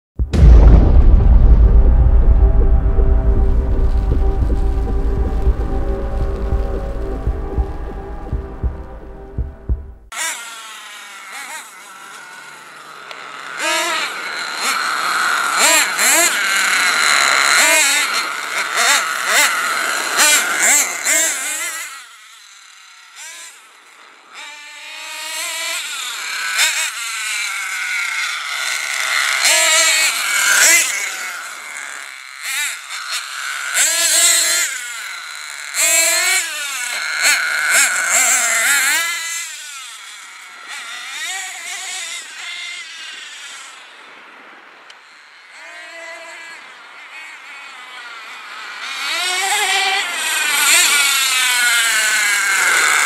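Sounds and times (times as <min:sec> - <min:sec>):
nitro rc truck engine revving: 0:10.2 - 0:43.8, 0:45.0 - 0:53.0.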